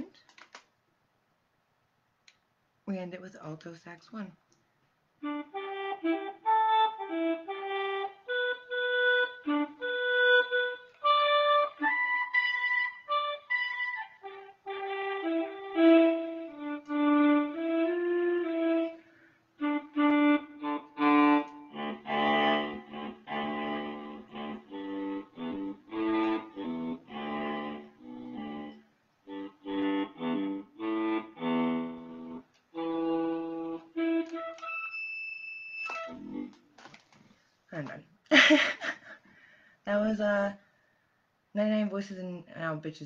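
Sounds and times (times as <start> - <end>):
electronic wind instrument melody: 5.2 - 36.6.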